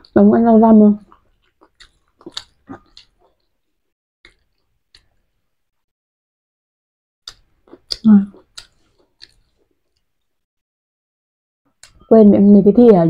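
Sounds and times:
people chewing: 0:01.0 - 0:05.4, 0:07.2 - 0:10.3.

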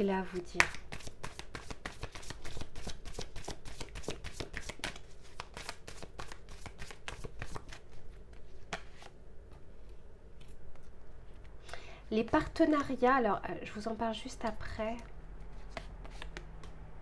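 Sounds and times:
cards being shuffled: 0:00.5 - 0:09.2, 0:15.4 - 0:16.8.

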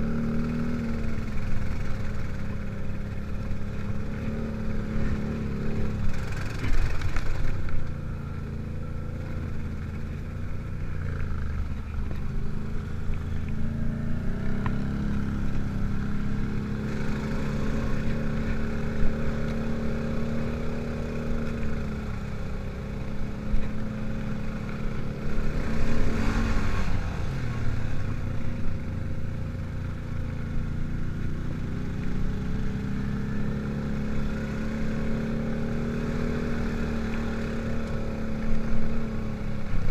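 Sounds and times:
atv engine revving: 0:00.0 - 0:39.9
rushes of noise: 0:23.9 - 0:28.6.

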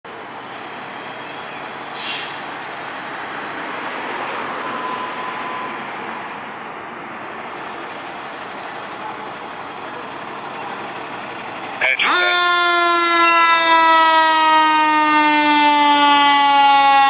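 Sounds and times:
air brake hiss: 0:02.0 - 0:02.6
diesel engine running: 0:05.5 - 0:12.4.

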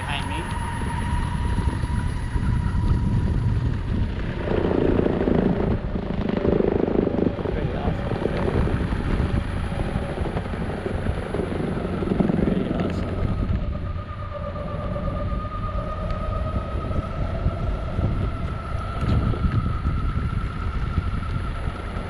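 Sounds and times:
electric motor whine: 0:00.0 - 0:22.0
wind on microphone: 0:00.0 - 0:22.0
skateboard wheels rumbling on concrete: 0:02.6 - 0:13.7.

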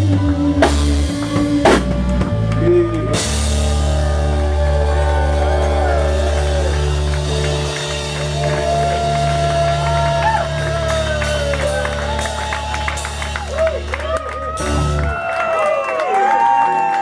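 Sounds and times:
rock band holding chord: 0:00.0 - 0:15.5
crowd voices: 0:00.0 - 0:17.0.

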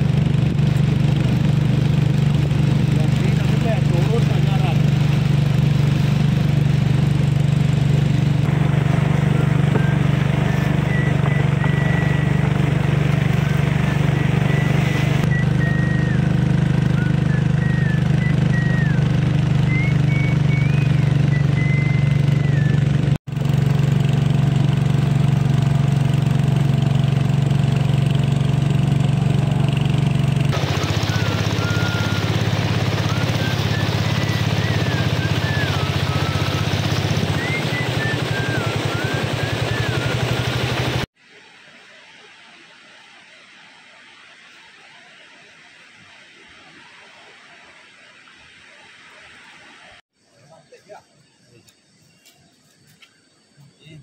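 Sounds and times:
small engine running: 0:00.0 - 0:41.1.

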